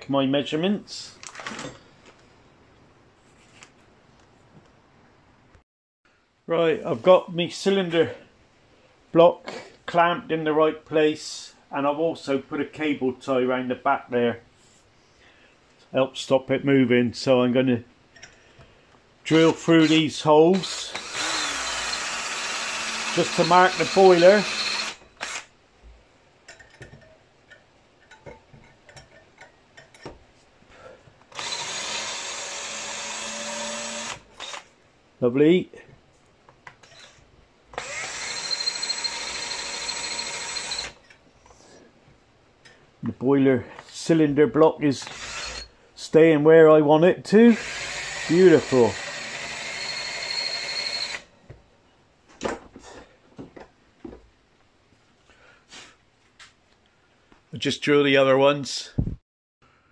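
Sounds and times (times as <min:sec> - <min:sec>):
cordless drill running: 0:20.5 - 0:25.5, 0:31.3 - 0:34.7, 0:36.8 - 0:41.0, 0:45.0 - 0:45.7, 0:47.5 - 0:51.3
metal tools knocking and clicking: 0:26.5 - 0:30.2.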